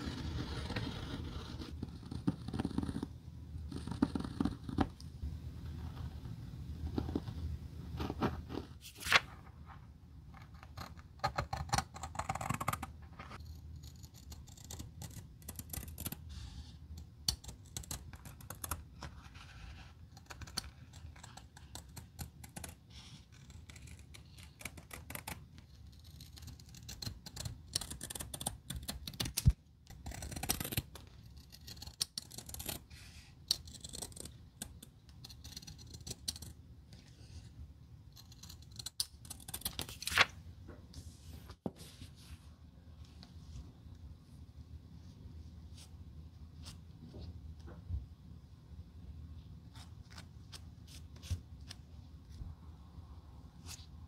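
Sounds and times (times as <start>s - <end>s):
pencil scratching: 0.0s - 4.9s, 10.4s - 29.3s, 29.9s - 37.5s.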